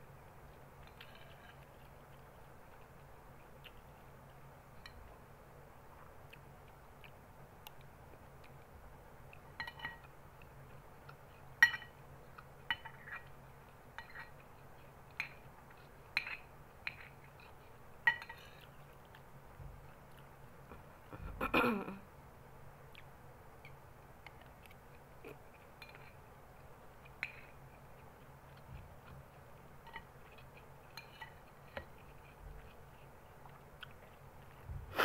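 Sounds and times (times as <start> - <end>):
metal spoon clinking on glass bowl: 9.6 - 10.1, 11.6 - 12.0, 18.0 - 18.4.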